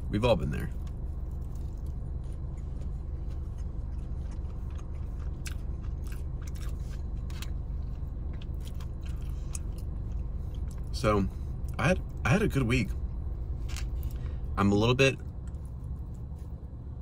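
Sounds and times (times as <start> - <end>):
low car cabin hum: 0.0 - 17.0
person chewing food: 0.7 - 10.9.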